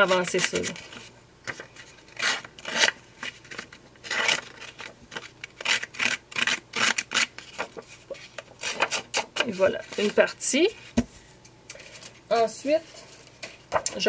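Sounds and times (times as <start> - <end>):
tool scraping paper edge: 2.1 - 3.0, 4.0 - 10.2.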